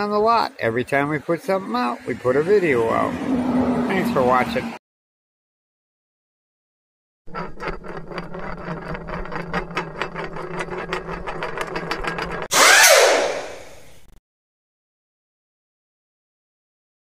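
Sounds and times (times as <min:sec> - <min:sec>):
air impact wrench hammering: 0:12.5 - 0:13.8
hissing burst with falling whine: 0:12.5 - 0:14.0.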